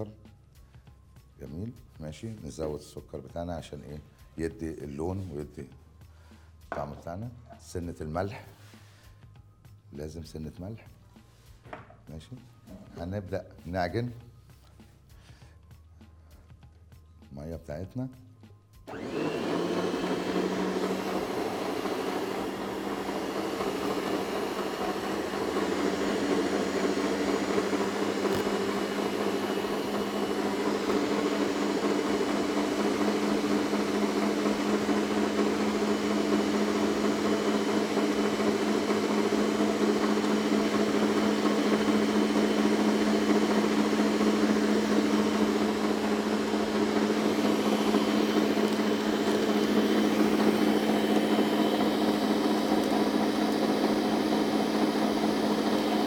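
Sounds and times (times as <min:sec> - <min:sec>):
stand mixer motor humming: 0:18.9 - 0:56.0.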